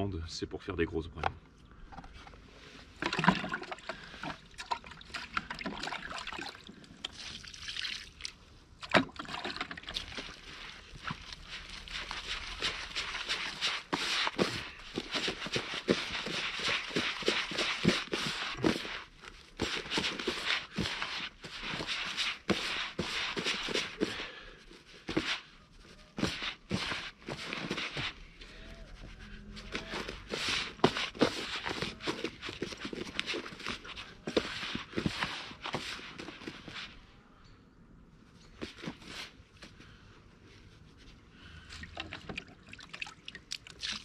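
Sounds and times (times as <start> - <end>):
hands mixing damp groundbait: 2.8 - 24.4, 41.7 - 44.0.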